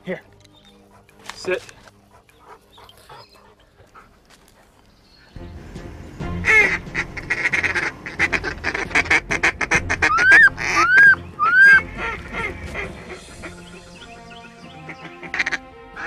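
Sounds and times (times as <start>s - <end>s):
goose honking: 6.4s - 13.6s, 14.8s - 16.0s
goose clucking: 6.4s - 13.7s, 14.8s - 16.0s.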